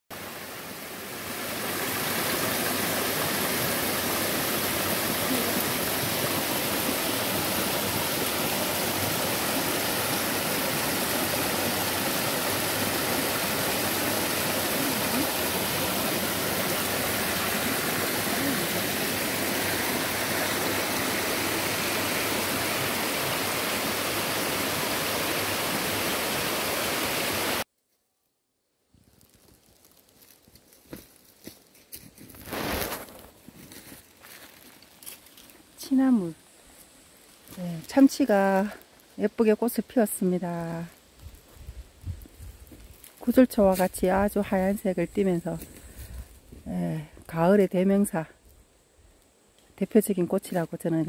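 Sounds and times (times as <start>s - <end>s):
stream rushing over rocks: 0.1s - 27.6s.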